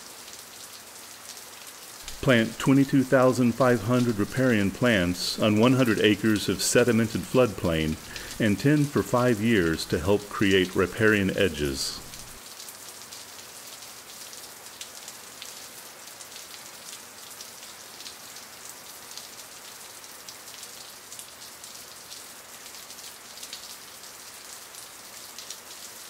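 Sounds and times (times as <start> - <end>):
steady crackling hiss: 2.0 - 13.0.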